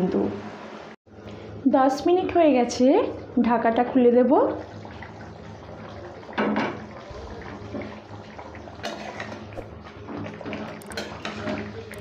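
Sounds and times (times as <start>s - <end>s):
curry bubbling in pan: 4.3s - 12.0s
spatula scraping pan: 8.8s - 9.5s.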